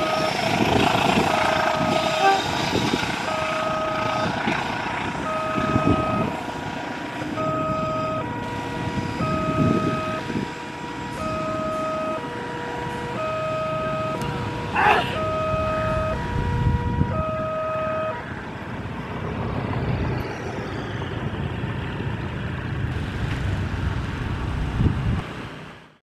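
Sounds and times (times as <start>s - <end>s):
two-tone crossing alarm: 0.0s - 18.5s
short horn toot: 1.9s - 2.5s.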